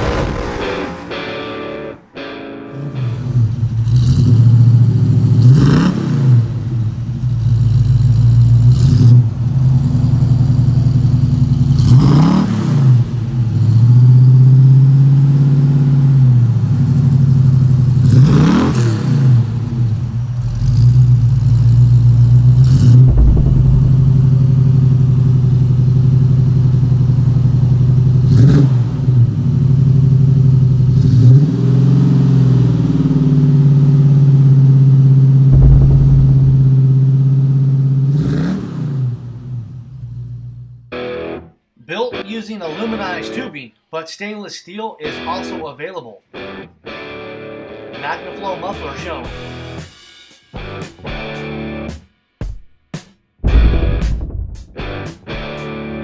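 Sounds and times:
car engine idling and revving: 0:03.5 - 0:24.7, 0:35.6 - 0:36.9.

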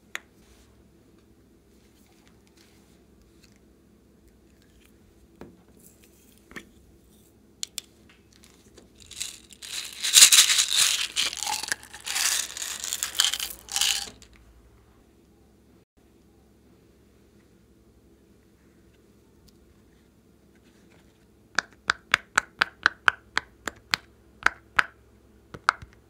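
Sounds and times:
plastic beads rattling from a bag: 0:08.4 - 0:14.3.

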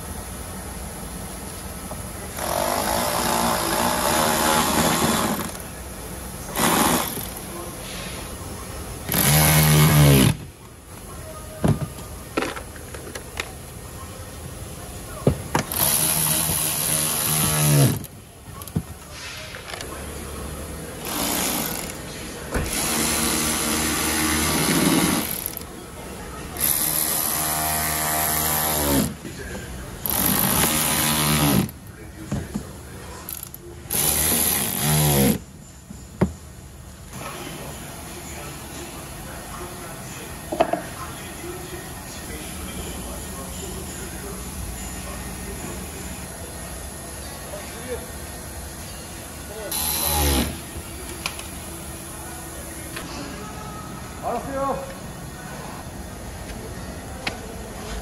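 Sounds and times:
electric ratchet running: 0:09.1 - 0:10.4, 0:15.6 - 0:18.1, 0:22.7 - 0:25.6, 0:30.0 - 0:31.7, 0:33.3 - 0:35.4, 0:49.7 - 0:50.7
electric ratchet motor whining: 0:49.7 - 0:50.6.

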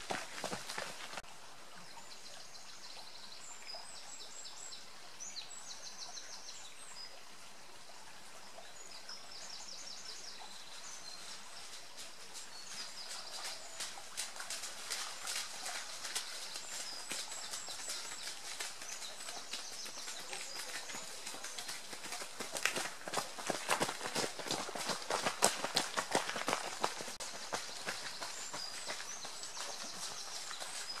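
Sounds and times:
runner's footfalls on road: 0:00.0 - 0:01.2, 0:21.8 - 0:29.8
steady outdoor hiss: 0:00.0 - 0:31.0.

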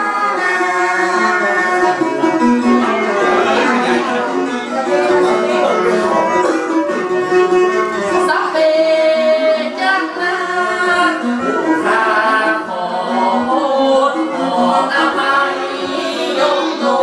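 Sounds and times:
traditional ensemble with plucked lute: 0:00.0 - 0:17.0.

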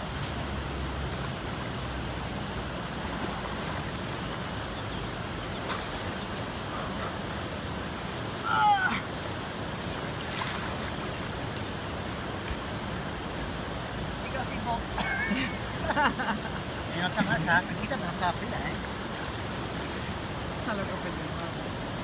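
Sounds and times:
river water rushing: 0:00.0 - 0:22.0
splashing of person wading: 0:10.0 - 0:11.8.

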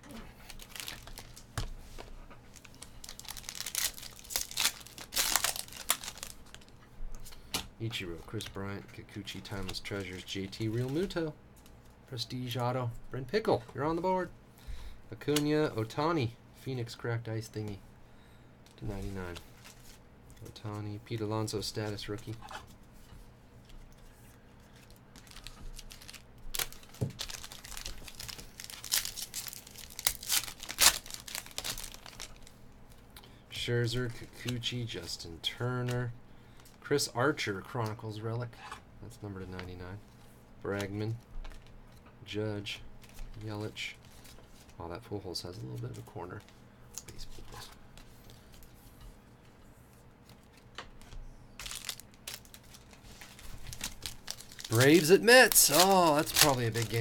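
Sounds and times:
foil wrapper tearing and crinkling: 0:00.4 - 0:01.6, 0:02.5 - 0:06.7, 0:24.8 - 0:32.6, 0:51.6 - 0:57.0.

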